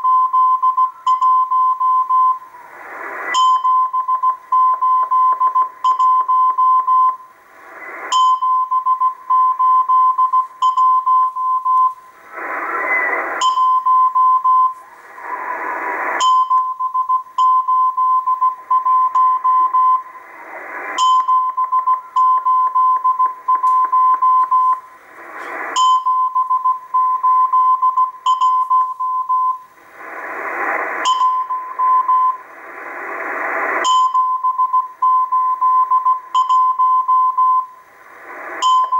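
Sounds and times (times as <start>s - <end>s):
radio static bursts: 1.7s - 38.9s
morse code tone: 3.3s - 7.2s, 8.0s - 14.8s, 16.1s - 20.1s, 21.0s - 24.9s, 25.7s - 29.7s, 30.7s - 32.4s, 33.7s - 37.8s, 38.5s - 38.9s.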